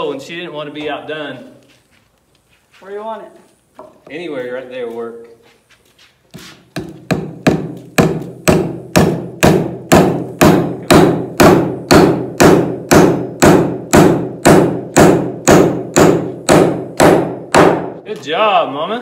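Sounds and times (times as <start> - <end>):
hammer driving nail into wood: 6.7 - 18.0.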